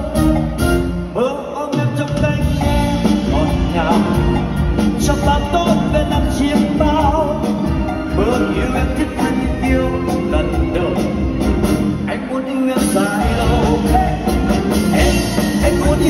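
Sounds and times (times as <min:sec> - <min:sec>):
band playing: 0:00.0 - 0:16.0
man singing into a microphone: 0:01.1 - 0:11.4, 0:12.1 - 0:16.0
drums beat: 0:01.8 - 0:12.1, 0:12.7 - 0:16.0.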